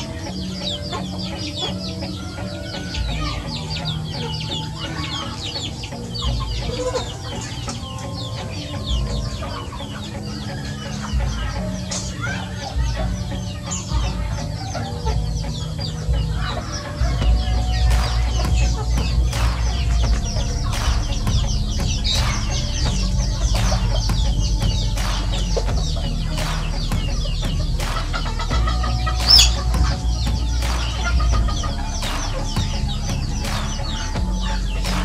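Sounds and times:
chickens clucking: 0.0s - 35.0s
low rumble: 17.2s - 35.0s
high-pitched chick call: 25.4s - 34.8s.

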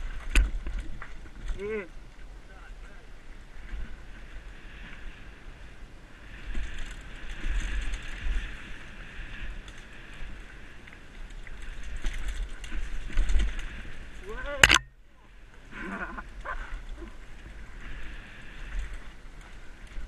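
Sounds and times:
bike tyres rolling on dirt: 0.0s - 20.0s
wind buffeting camera: 3.3s - 20.0s
bike chain and frame rattling: 6.5s - 10.5s, 11.1s - 14.9s.

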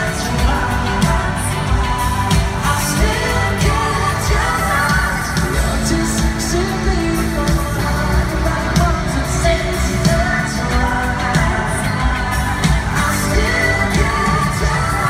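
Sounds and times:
live pop song through pa: 0.0s - 15.0s
man singing: 0.0s - 15.0s.

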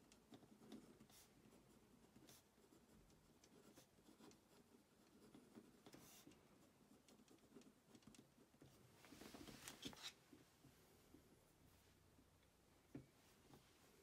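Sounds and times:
fountain pen scratching paper: 0.3s - 8.8s.

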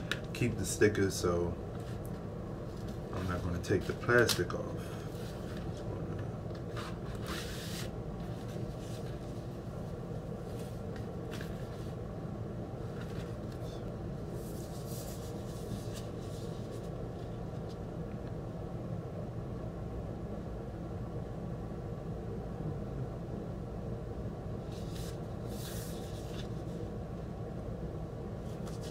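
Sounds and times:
steady low hum: 0.0s - 28.9s
paper and card rustling: 1.8s - 5.9s, 6.5s - 9.6s, 10.2s - 12.0s, 12.8s - 17.3s, 24.7s - 26.8s, 28.4s - 28.9s.

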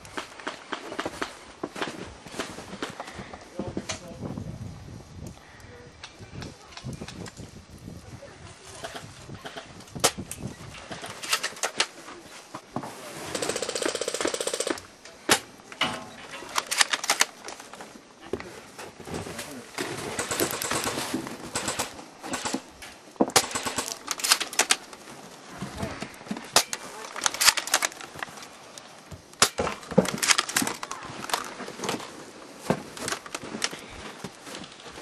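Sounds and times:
full-auto airsoft burst: 13.3s - 14.8s, 20.0s - 22.6s, 23.4s - 24.7s.

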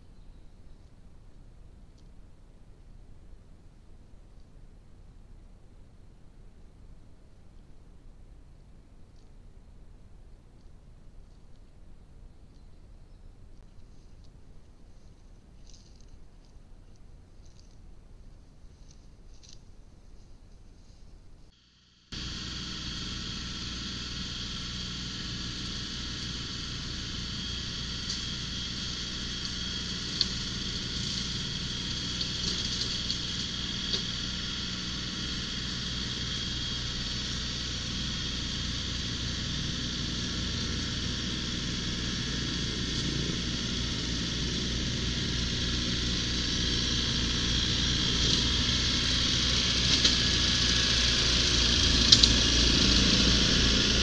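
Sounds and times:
tractor diesel engine running: 21.6s - 54.0s.

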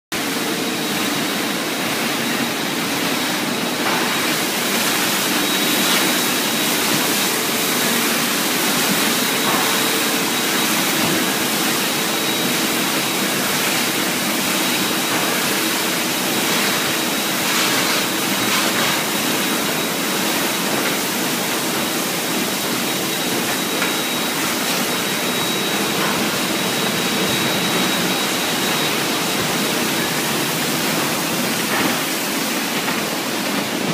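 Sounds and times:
machine hum: 0.2s - 33.9s
thin high whine: 16.4s - 32.8s.

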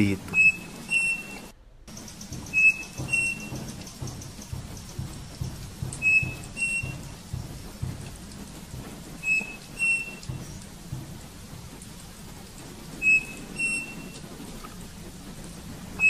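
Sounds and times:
low rumbling: 0.0s - 16.0s
steady rain-like rushing noise: 0.0s - 16.0s
bird two-note whistled song: 0.3s - 1.5s, 6.0s - 7.1s, 13.0s - 14.2s.

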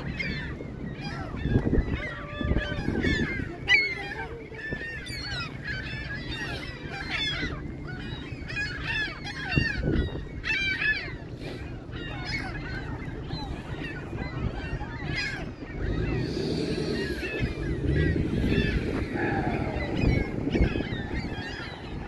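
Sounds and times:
flock of birds calling: 0.0s - 22.0s
steady low rumble: 11.3s - 22.0s.

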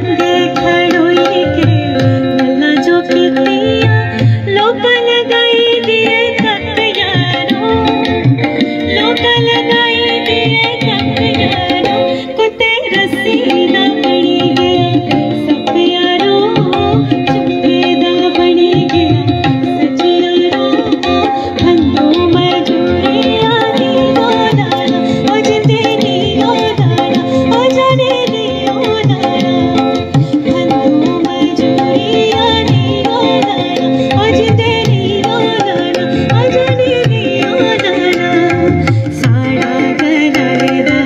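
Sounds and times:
tabla drumming: 0.0s - 41.0s
woman singing: 0.0s - 41.0s.

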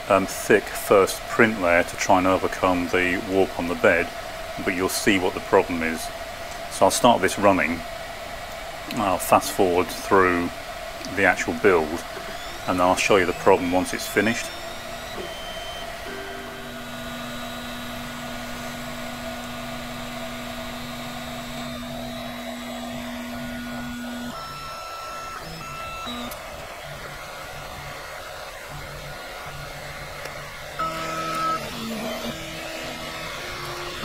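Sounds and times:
printer fans rushing: 0.0s - 34.0s
stepper motors humming: 0.0s - 34.0s
motor tones changing pitch: 9.0s - 34.0s.

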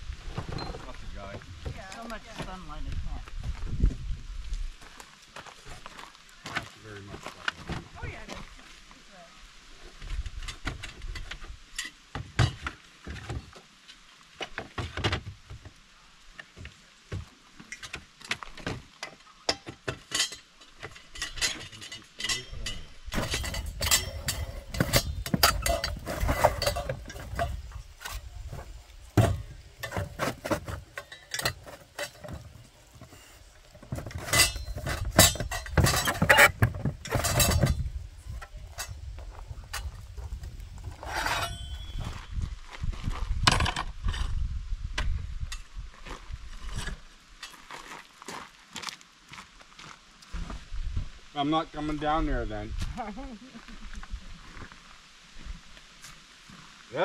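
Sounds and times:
clinks and knocks of hard objects: 17.1s - 42.2s.

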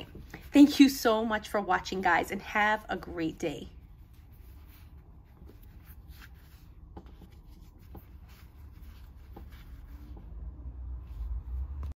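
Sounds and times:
hands squishing modeling dough: 4.0s - 11.9s.

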